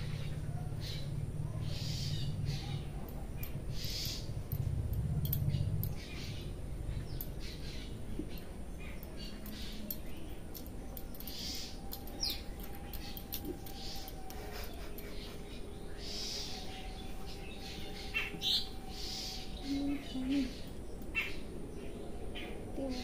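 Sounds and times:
low rumble: 0:00.0 - 0:23.0.

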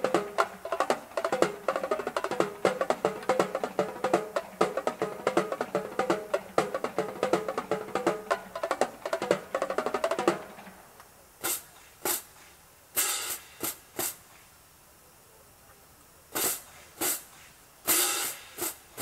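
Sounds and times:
marching drumline playing: 0:00.0 - 0:10.8, 0:16.4 - 0:17.3, 0:17.9 - 0:19.0.

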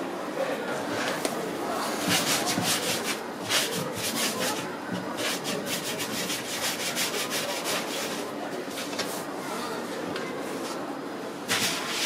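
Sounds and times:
hands rolling dough on worktop: 0:00.9 - 0:09.3, 0:11.5 - 0:12.0.

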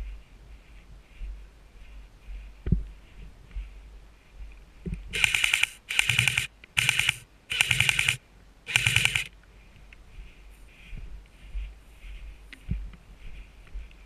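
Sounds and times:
airsoft gun firing bursts: 0:05.1 - 0:09.3.

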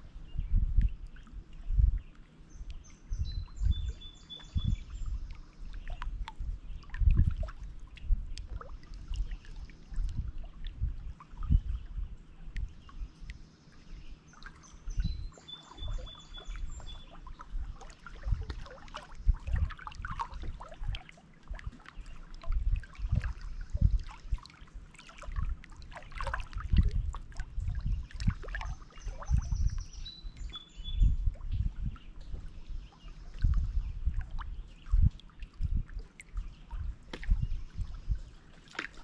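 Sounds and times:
songbird singing: 0:00.0 - 0:39.0
waves lapping against rocks: 0:15.7 - 0:29.4, 0:38.3 - 0:39.0.

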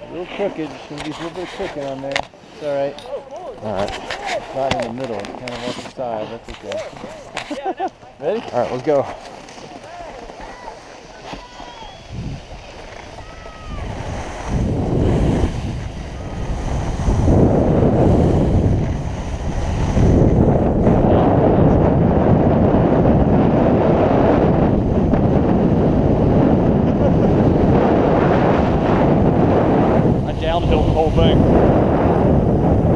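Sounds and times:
skis scraping icy snow: 0:00.0 - 0:03.0, 0:03.6 - 0:21.0, 0:29.8 - 0:31.9
wind buffeting microphone: 0:09.8 - 0:32.9.

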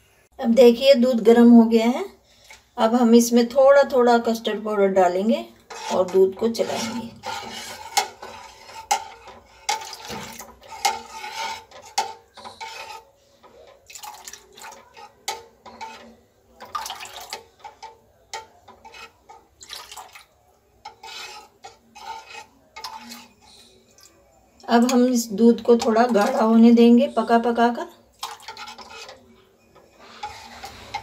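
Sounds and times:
spoon stirring and scraping pan: 0:00.7 - 0:31.0
liquid pouring into milk: 0:12.4 - 0:24.3.

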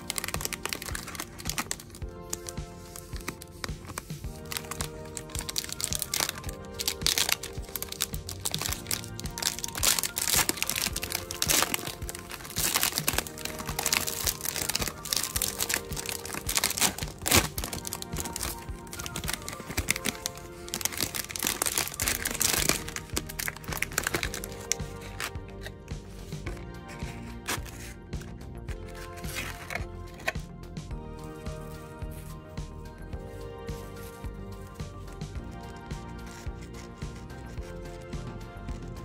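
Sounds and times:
plastic wrapper crinkling: 0:00.0 - 0:25.8, 0:26.5 - 0:30.4
background music: 0:00.0 - 0:39.0.

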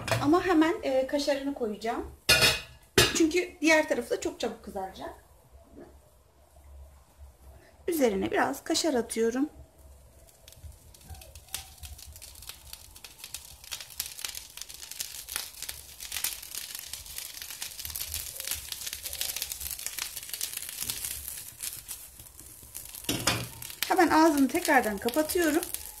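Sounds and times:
omelette frying in a pan: 0:07.9 - 0:26.0.

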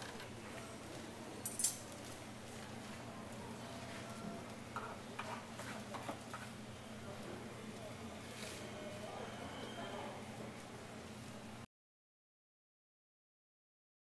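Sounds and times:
low background hum: 0:00.0 - 0:11.7
metal tongs clinking on tray: 0:01.4 - 0:02.2.

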